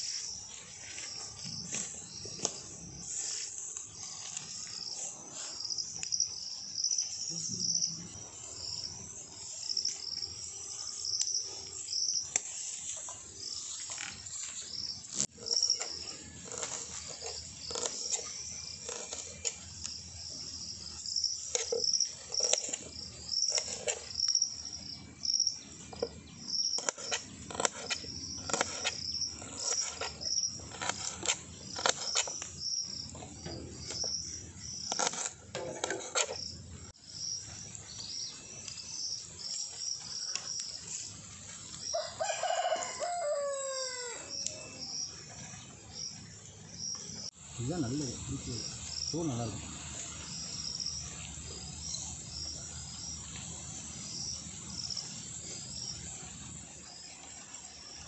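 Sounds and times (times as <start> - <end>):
rooster crowing: 41.9 - 44.7.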